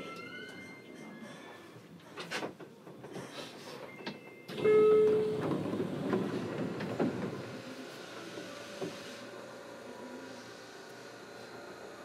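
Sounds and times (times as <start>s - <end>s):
train doors sliding with air rush: 2.2s - 12.0s
stopped train hum: 4.6s - 12.0s.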